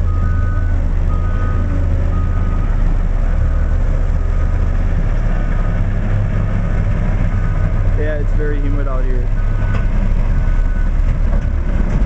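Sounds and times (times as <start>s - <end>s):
diesel engine droning: 0.0s - 12.0s
backup alarm beeping: 0.1s - 2.8s.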